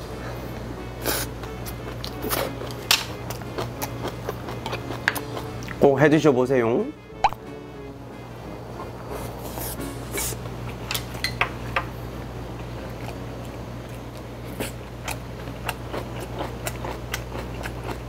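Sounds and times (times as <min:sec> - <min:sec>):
person chewing: 0:01.0 - 0:05.8, 0:12.6 - 0:18.0.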